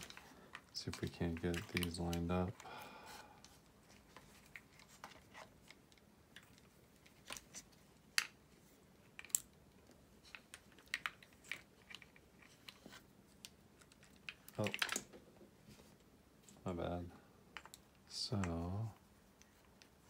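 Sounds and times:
small plastic clicks and knocks: 0:09.0 - 0:15.2.

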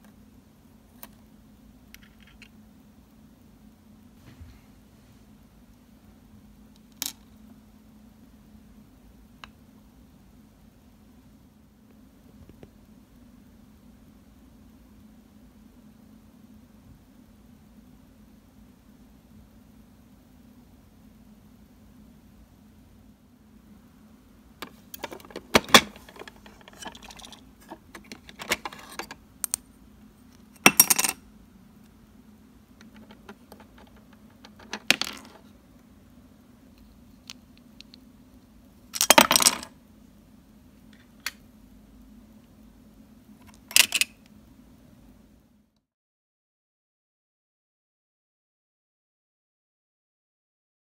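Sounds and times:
faint steady hum: 0:00.0 - 0:45.9
toy kitchenware clinking: 0:24.6 - 0:29.1, 0:30.6 - 0:31.2.

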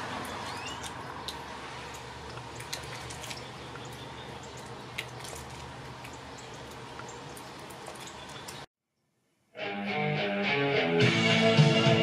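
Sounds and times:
raindrops ticking: 0:00.0 - 0:08.7.

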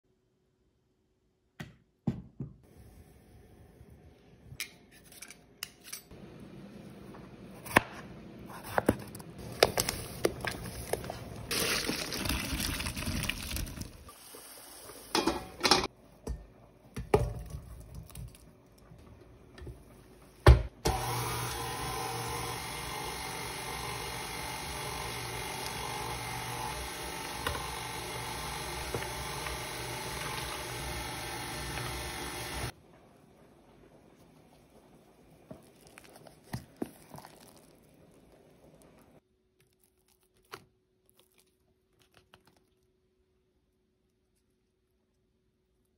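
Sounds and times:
pots and utensils clinking: 0:15.1 - 0:17.6
stand mixer running: 0:20.8 - 0:32.7.

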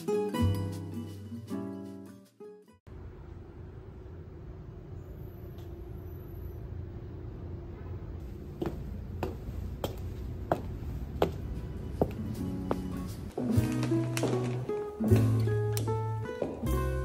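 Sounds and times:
low outdoor rumble: 0:02.9 - 0:13.3
footsteps on concrete steps: 0:08.5 - 0:14.5.

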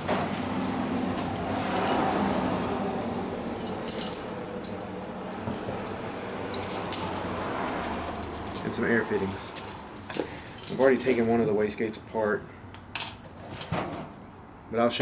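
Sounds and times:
metal clamps clinking: 0:00.0 - 0:02.8, 0:03.6 - 0:07.3, 0:09.5 - 0:11.5, 0:12.7 - 0:14.8.

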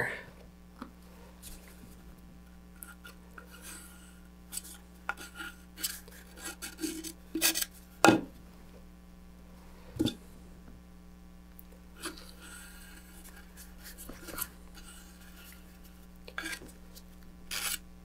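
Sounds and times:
wooden stick scraping epoxy: 0:12.0 - 0:16.8, 0:17.5 - 0:17.8.

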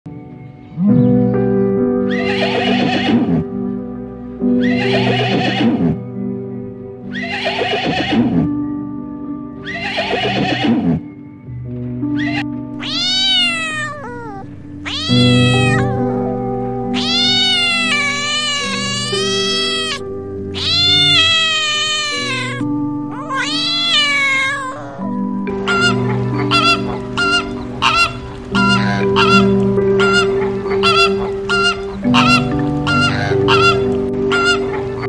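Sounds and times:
soft background music: 0:00.1 - 0:35.0
horse whinnying: 0:02.1 - 0:03.5, 0:04.6 - 0:06.0, 0:07.1 - 0:08.5, 0:09.6 - 0:11.0, 0:12.2 - 0:15.9, 0:20.6 - 0:26.9
cat meowing: 0:04.6 - 0:06.0, 0:12.2 - 0:16.0, 0:16.9 - 0:29.5.

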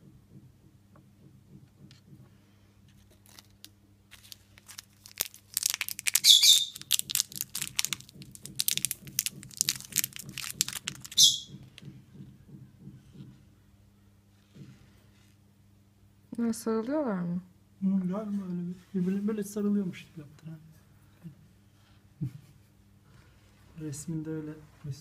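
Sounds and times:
plastic ripping: 0:03.0 - 0:11.4
plastic bag crinkling: 0:03.0 - 0:11.5.

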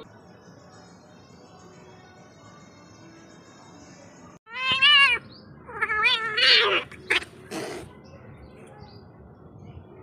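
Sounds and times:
cats yowling: 0:04.5 - 0:07.8
cat hissing: 0:05.8 - 0:07.9.

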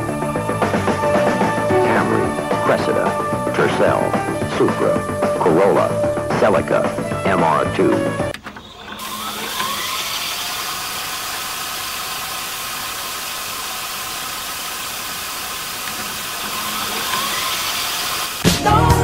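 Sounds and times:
tape fast-forward whirring hiss: 0:00.0 - 0:19.0
thin rising whine: 0:08.6 - 0:19.0.

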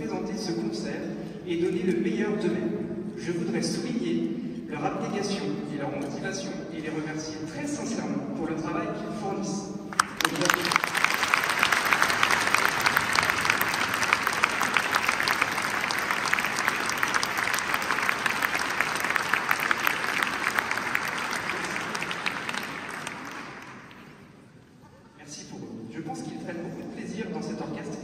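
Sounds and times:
audience applauding: 0:10.0 - 0:24.3.

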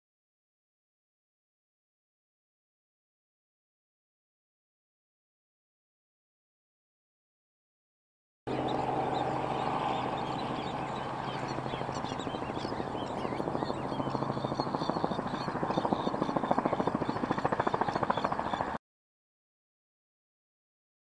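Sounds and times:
helicopter engine hum: 0:08.5 - 0:18.8
helicopter rotor beat: 0:08.5 - 0:18.8.

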